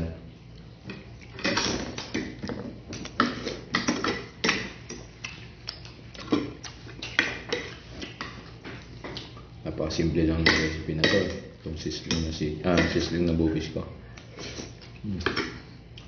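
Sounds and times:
chewing and lip smacks: 4.9s - 9.6s, 14.2s - 16.0s.

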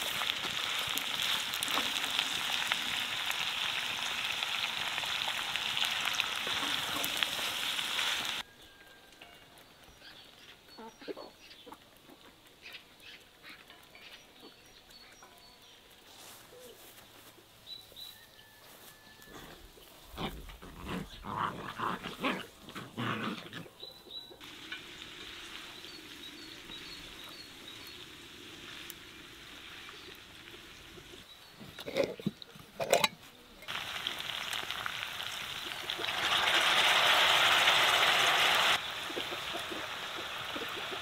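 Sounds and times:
steady hiss: 0.0s - 5.6s, 24.4s - 31.3s.

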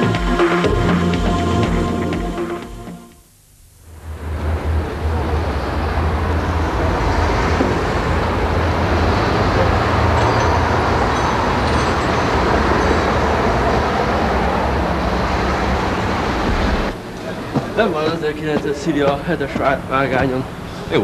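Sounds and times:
road traffic rumble: 3.9s - 21.0s.

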